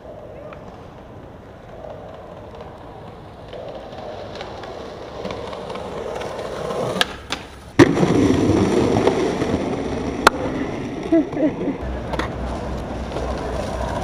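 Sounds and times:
skateboard clacks: 0:00.0 - 0:14.0
skateboard wheels rolling on concrete: 0:00.0 - 0:14.0
skateboard landing smack: 0:06.9 - 0:09.6.

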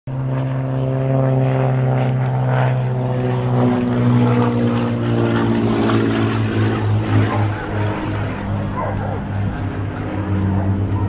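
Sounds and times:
propeller plane engine droning: 0:00.1 - 0:11.0.

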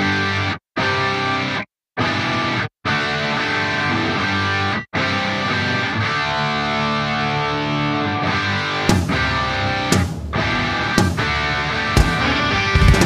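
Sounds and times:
guitar music: 0:00.0 - 0:13.0
sharp hits: 0:08.9 - 0:13.0.

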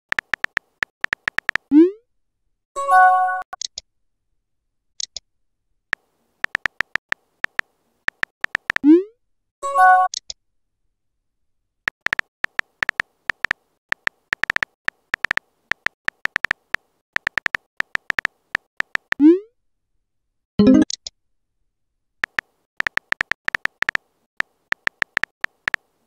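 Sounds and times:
quick keyboard taps: 0:00.1 - 0:01.7, 0:06.0 - 0:08.8, 0:11.9 - 0:19.2, 0:22.2 - 0:25.9.

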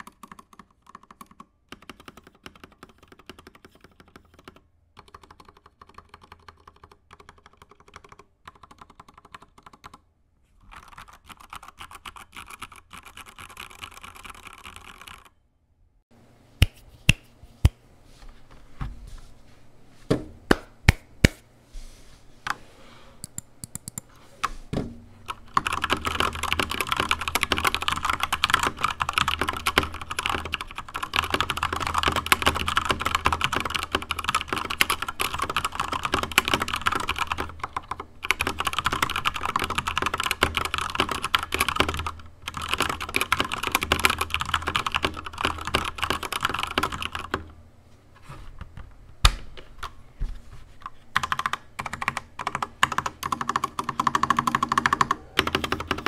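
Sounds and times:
mechanical keyboard typing: 0:00.0 - 0:10.0, 0:10.7 - 0:15.3, 0:25.3 - 0:47.5, 0:51.2 - 0:56.0.

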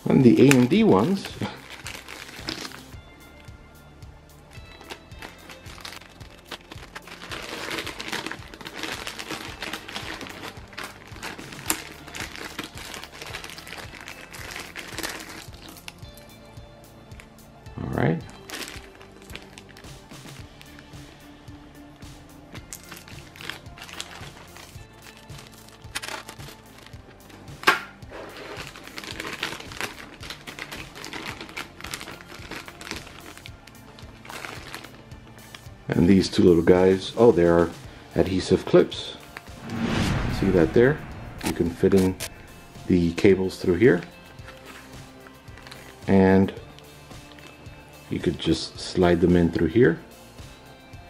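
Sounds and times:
plastic bag crinkling: 0:04.8 - 0:15.7.

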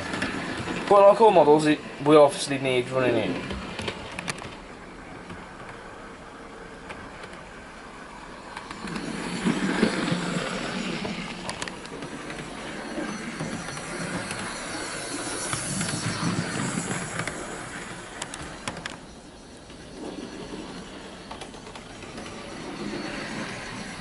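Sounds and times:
model train rumbling on track: 0:00.0 - 0:24.0.

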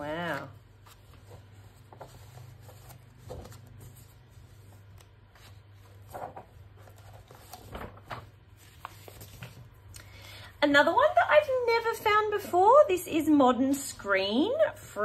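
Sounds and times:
magazine pages turning: 0:00.0 - 0:09.9.

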